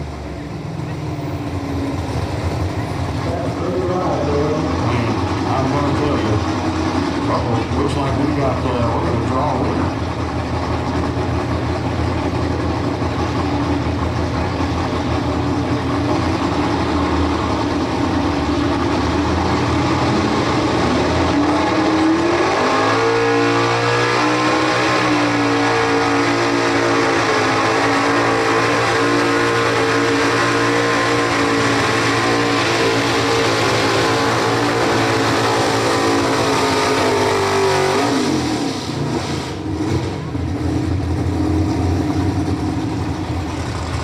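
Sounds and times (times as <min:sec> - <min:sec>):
engine rough idle: 0:00.0 - 0:21.6, 0:38.9 - 0:44.0
truck engine revving at full throttle: 0:00.0 - 0:44.0.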